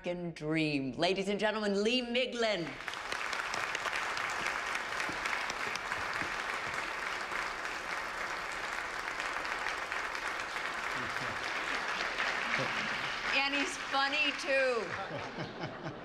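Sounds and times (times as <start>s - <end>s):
audience applauding: 2.7s - 15.9s.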